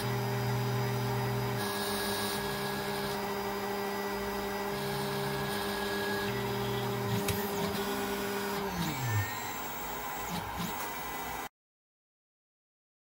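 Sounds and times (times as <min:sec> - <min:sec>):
stepper motors humming: 0:00.0 - 0:11.5
high rising and falling whines: 0:04.8 - 0:11.5.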